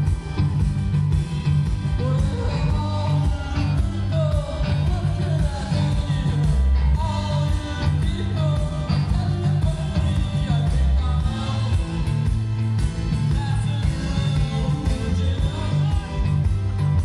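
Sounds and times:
drums: 0:00.0 - 0:17.0
heavy pulsing bass: 0:00.0 - 0:17.0
live rock band playing: 0:00.0 - 0:17.0
person singing: 0:01.8 - 0:17.0.

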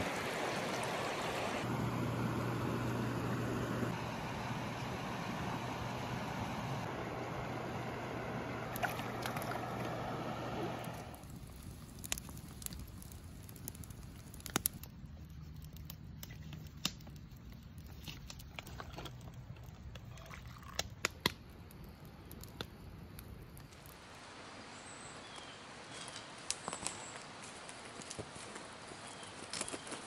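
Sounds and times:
campfire crackling and popping: 0:08.5 - 0:24.1, 0:25.3 - 0:30.0.

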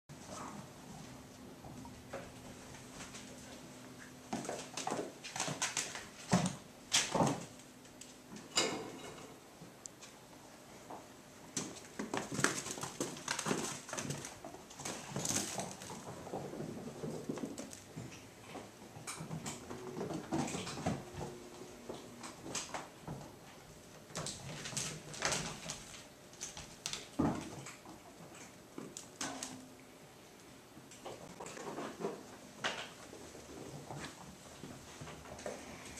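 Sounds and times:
kittens scrabbling: 0:11.6 - 0:21.4.

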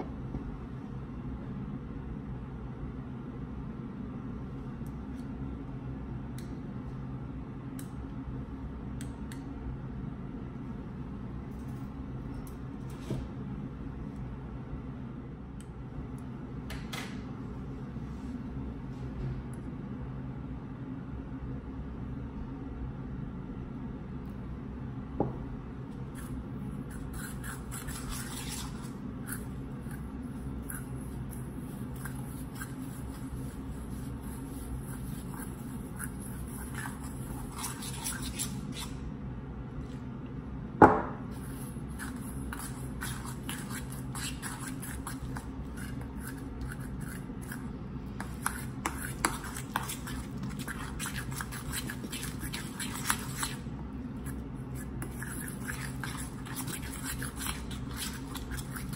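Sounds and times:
steady low hum: 0:00.0 - 0:58.9
utensil scraping steel bowl: 0:26.9 - 0:30.0, 0:42.0 - 0:47.6, 0:48.2 - 0:53.6, 0:54.2 - 0:58.9.

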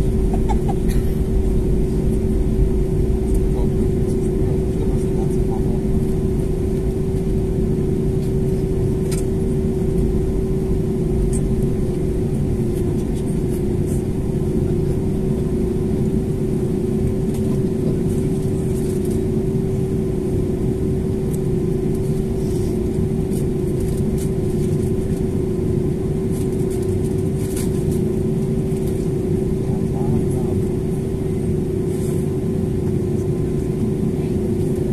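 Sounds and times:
jet engines rumbling at taxi power: 0:00.0 - 0:34.9.

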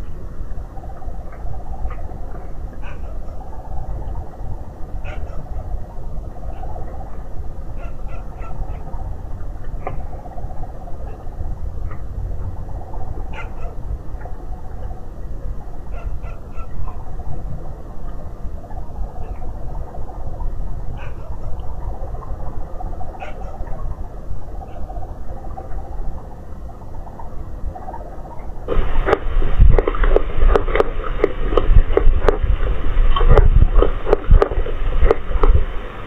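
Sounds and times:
low microphone hiss: 0:00.0 - 0:36.0
dog barking: 0:05.0 - 0:05.4, 0:07.8 - 0:08.8, 0:13.3 - 0:13.8, 0:15.9 - 0:16.7.

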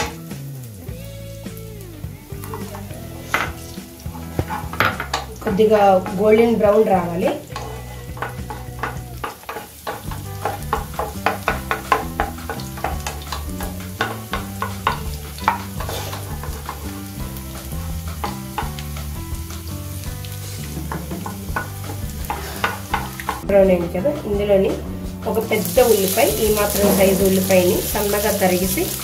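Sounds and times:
background music: 0:00.0 - 0:29.0
food sizzling in hot oil: 0:00.0 - 0:29.0
wooden spatula scraping pan: 0:02.5 - 0:23.4, 0:24.7 - 0:29.0.

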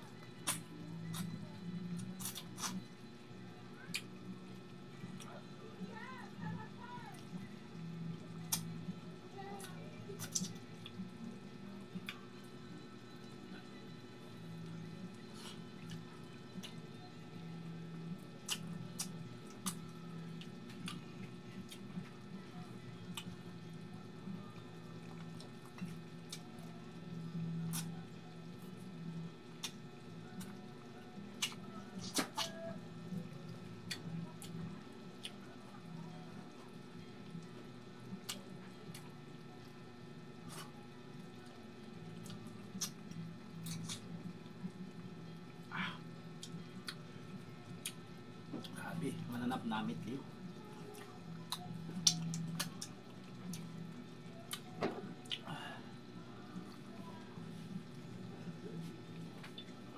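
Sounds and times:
steady low hum: 0:00.0 - 0:59.9
wet mouth smacks: 0:51.5 - 0:53.6.

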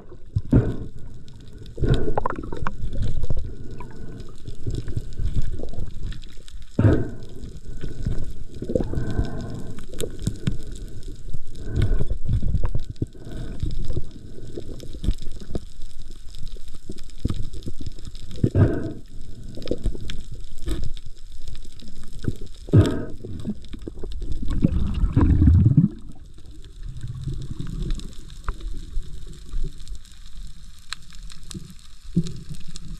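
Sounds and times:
muffled underwater rumbling and knocking: 0:22.8 - 0:28.6.

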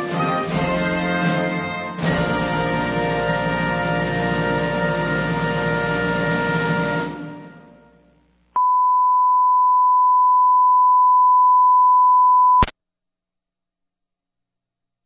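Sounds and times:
closing music: 0:00.0 - 0:08.1.

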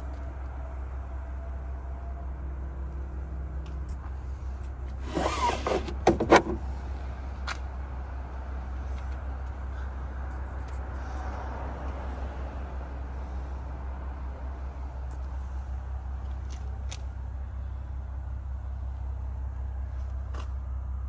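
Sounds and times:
window latch creaking and clicking: 0:05.1 - 0:06.6.

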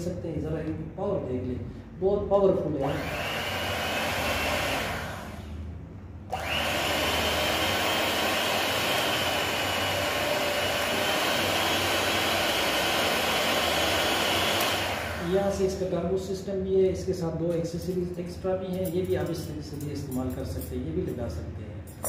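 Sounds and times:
electric hand mixer whine: 0:02.9 - 0:05.5, 0:06.3 - 0:15.7.

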